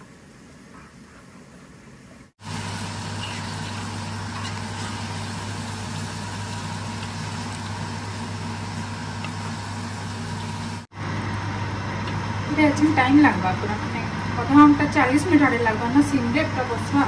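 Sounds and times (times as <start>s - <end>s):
extractor fan humming: 0.0s - 17.0s
food cooking hiss: 2.4s - 10.9s.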